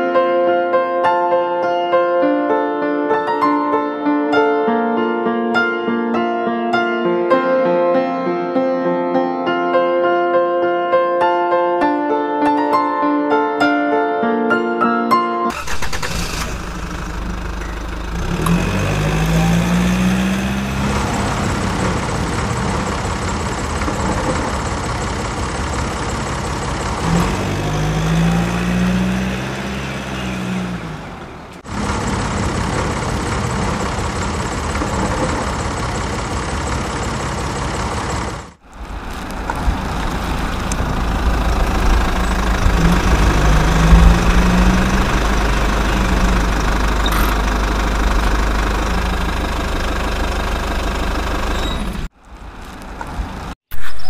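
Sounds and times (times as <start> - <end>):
engine idling and revving: 15.5 - 53.6.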